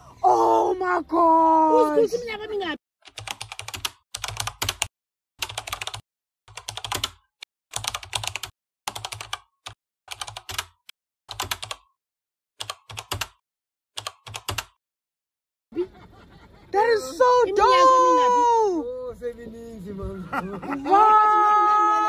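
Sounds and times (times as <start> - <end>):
keyboard typing clicks: 3.1 - 11.9, 14.0 - 14.8.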